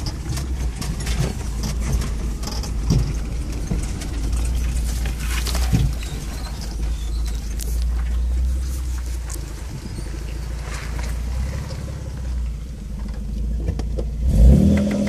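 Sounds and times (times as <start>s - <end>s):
heavy thuds over bumps: 0.0s - 14.2s
brush scraping vehicle sides: 0.0s - 15.0s
engine running low: 0.0s - 15.0s
vehicle body rattles and clicks: 0.0s - 15.0s.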